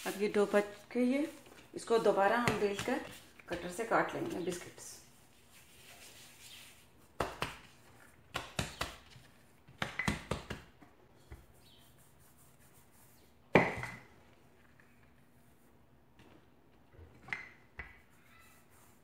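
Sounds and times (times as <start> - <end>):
hands slapping dough: 2.2 - 4.7, 5.8 - 11.6.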